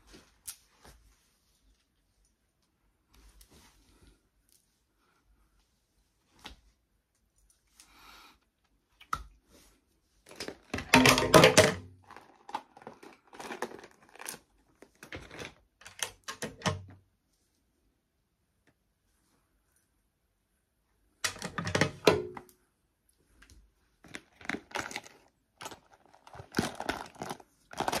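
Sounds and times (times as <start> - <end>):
plastic pouch crinkling: 12.0 - 15.4, 24.0 - 28.0.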